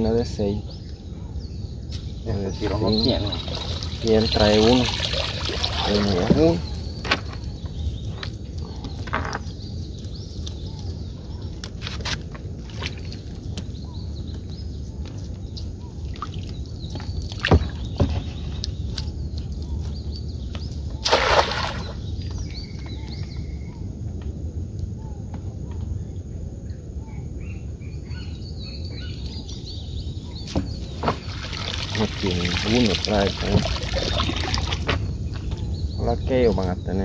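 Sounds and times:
water sloshing: 2.6s - 7.5s, 21.0s - 22.6s, 30.5s - 35.2s
net splashing into water: 3.3s - 6.6s, 21.0s - 22.1s, 30.9s - 34.9s.

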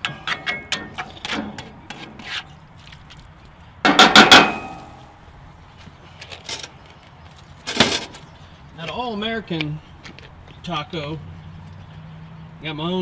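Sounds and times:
metal utensils clattering: 0.0s - 2.2s
metal spatula scraping skillet: 0.0s - 2.6s.

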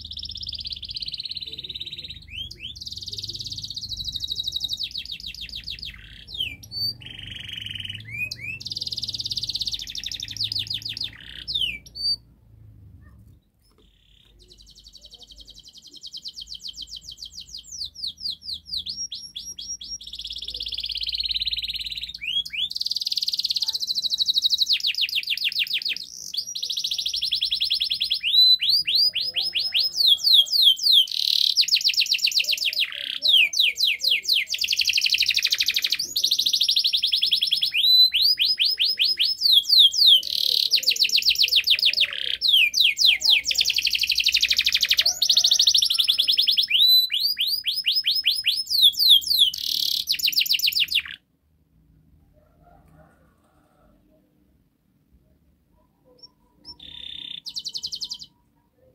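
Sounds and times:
canary singing rapid trills: 0.0s - 12.4s, 13.8s - 51.2s, 56.0s - 58.6s.

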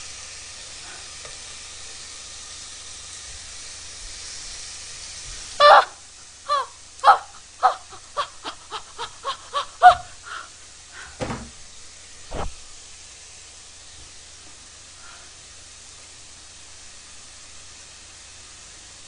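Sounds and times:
meat sizzling in a frying pan: 0.0s - 8.6s, 10.1s - 19.0s
woman chanting rhythmic syllables: 6.5s - 10.2s
dull thumps: 11.2s - 11.6s, 12.3s - 12.6s.

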